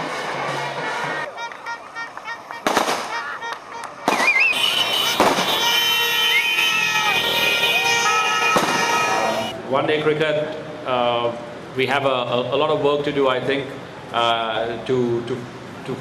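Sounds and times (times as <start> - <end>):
firecrackers banging: 0.0 - 9.5
horns blowing: 0.0 - 9.6
whistling: 4.2 - 5.0, 6.2 - 6.6.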